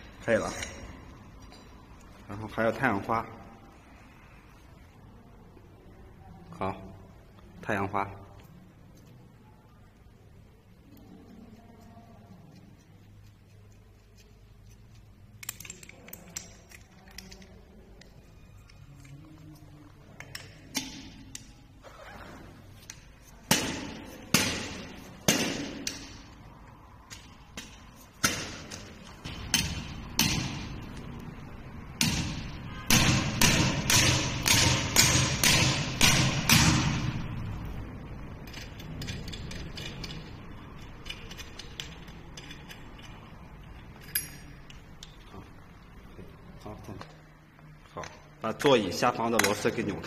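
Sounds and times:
sharp knocks of tool setting nut: 32.0 - 37.0.

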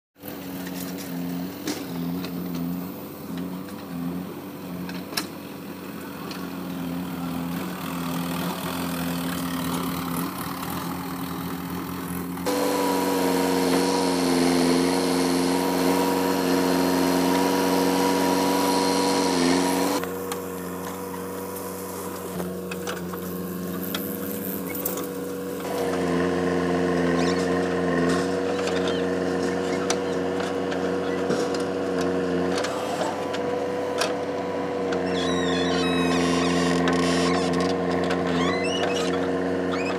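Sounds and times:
diesel engine running: 0.2 - 39.9
digger digging soil: 11.9 - 39.2.

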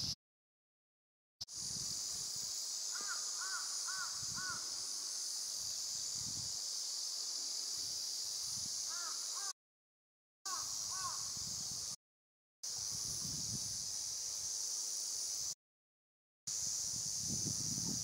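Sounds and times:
steady high hiss: 1.4 - 9.5, 10.5 - 12.0, 12.6 - 15.6, 16.5 - 18.0
crow cawing: 2.9 - 4.7, 8.9 - 9.5, 10.5 - 11.3.

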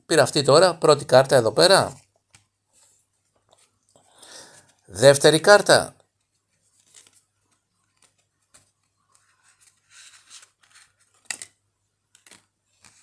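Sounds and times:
cards scraping: 6.7 - 11.5.

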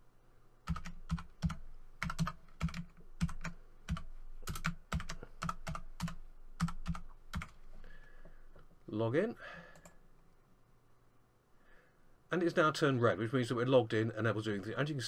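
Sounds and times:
computer keyboard typing: 0.6 - 7.6.

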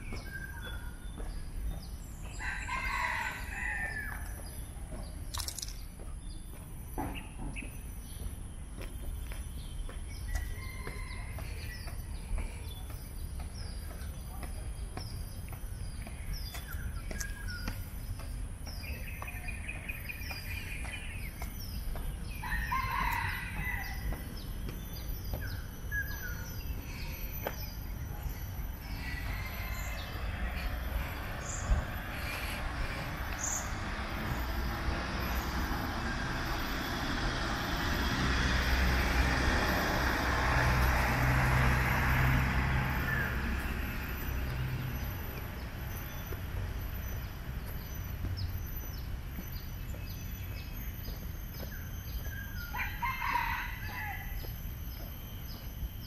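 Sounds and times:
rushing noise with low hum: 0.0 - 56.0
rooster crowing: 2.4 - 4.3, 10.5 - 11.7, 22.4 - 24.2, 28.9 - 30.7, 52.7 - 54.5.

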